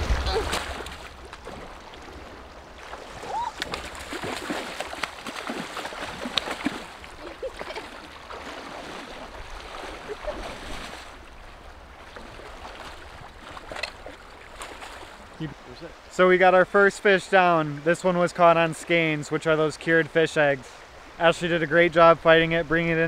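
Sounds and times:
water splashing around legs: 0.0 - 15.4
small irregular splashes: 0.0 - 16.1
river rushing: 0.0 - 22.7.

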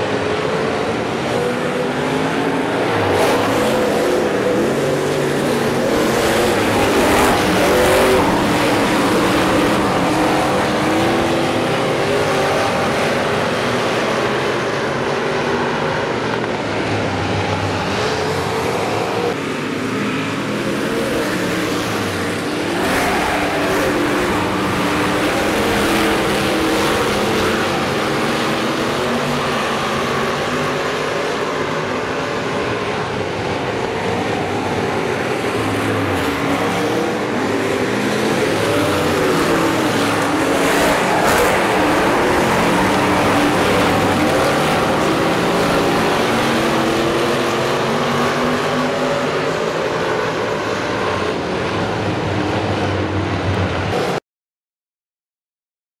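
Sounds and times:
race car engines: 0.0 - 54.2.

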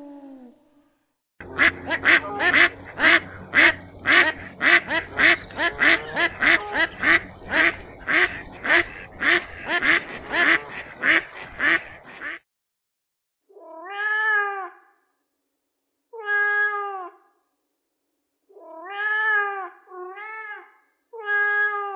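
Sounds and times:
loud animal calls: 1.4 - 12.3.

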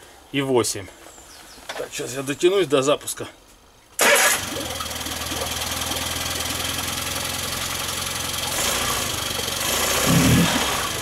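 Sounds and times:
outboard engine idling: 4.0 - 11.0
outboard engine starting: 4.0 - 11.0.

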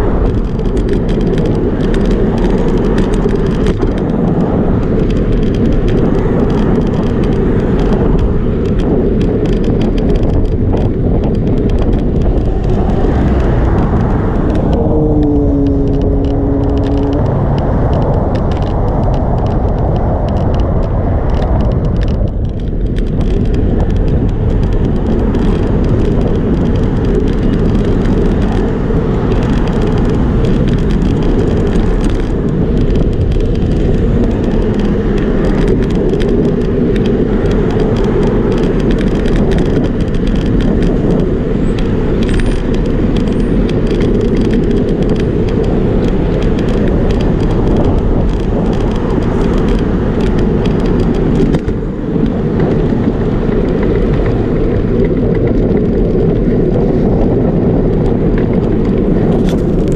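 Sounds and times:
road traffic: 0.0 - 59.9
tyre noise on pavement: 0.0 - 59.9
wind buffeting microphone: 0.0 - 59.9.

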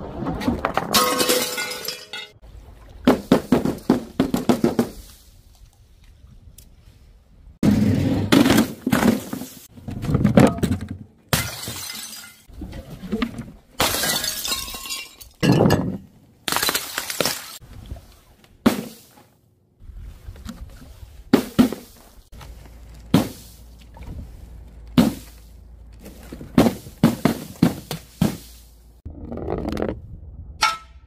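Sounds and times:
bottles smashing on paving tiles: 0.6 - 2.4, 10.3 - 12.5, 13.8 - 17.6.

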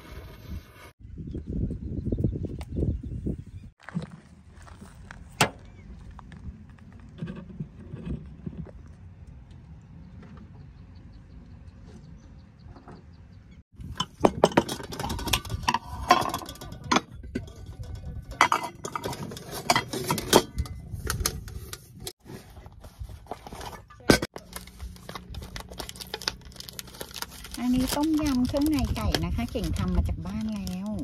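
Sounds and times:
utensils rattling against metal pot: 13.8 - 22.1.

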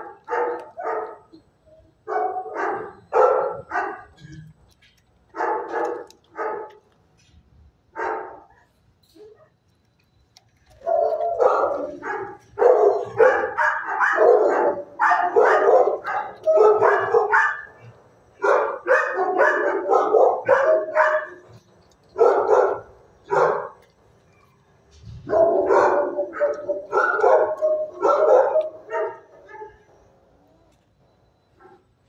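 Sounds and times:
dog barking: 0.0 - 1.4, 2.0 - 4.2, 5.4 - 6.8, 8.0 - 8.6, 10.8 - 21.6, 22.2 - 23.8, 25.2 - 30.0, 31.6 - 31.9.

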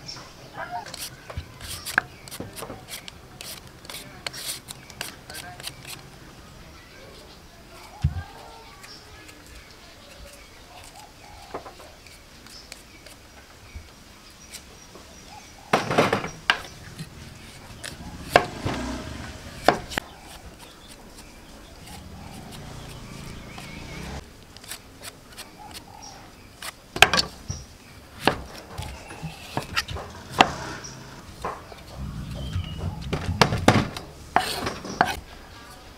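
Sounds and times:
knife scraping vegetable peel: 0.8 - 6.2, 8.7 - 13.3, 14.4 - 14.8, 16.6 - 27.4, 28.2 - 30.6, 34.3 - 35.8.

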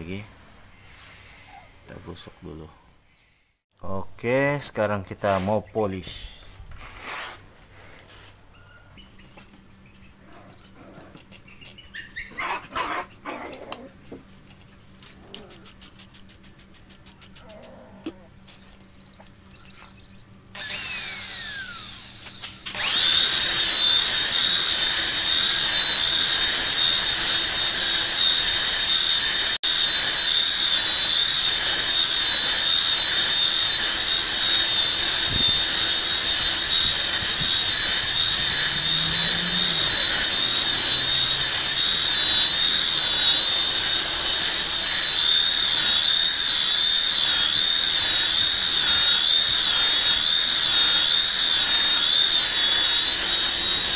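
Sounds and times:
polisher motor whining: 20.6 - 53.9.

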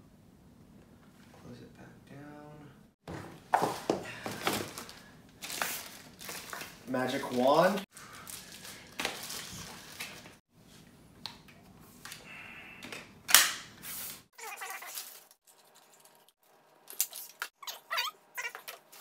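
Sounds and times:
plastic and cardboard crinkling: 3.5 - 10.4, 14.4 - 17.8
short squeaky sounds: 17.6 - 18.8.

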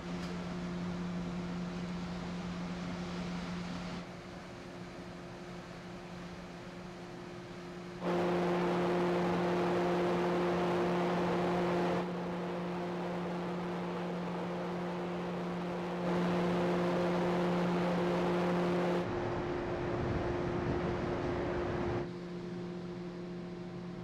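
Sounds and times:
ferry machinery hum: 8.0 - 22.1.

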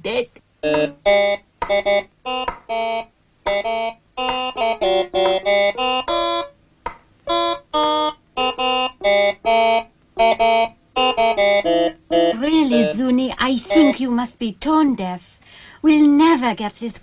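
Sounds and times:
electronic organ notes and chords: 0.6 - 6.6, 7.2 - 13.0.

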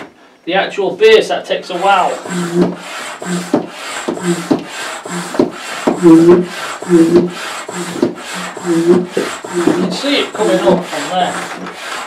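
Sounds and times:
hand pump stroking: 1.7 - 12.0.

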